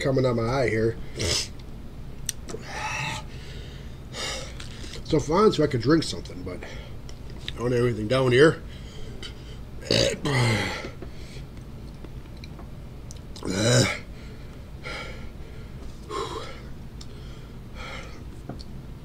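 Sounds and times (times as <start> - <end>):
man making throaty sound: 13.4 - 14.1.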